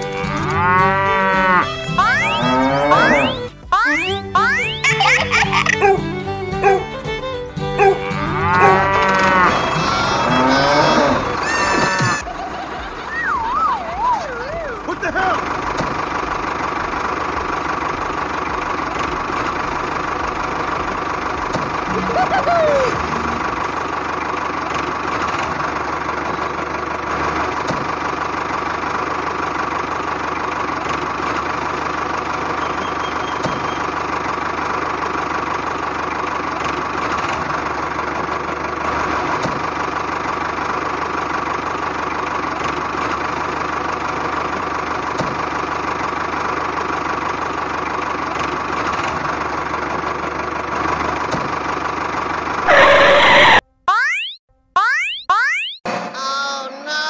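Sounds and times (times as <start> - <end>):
motor humming: 15.4 - 28.9.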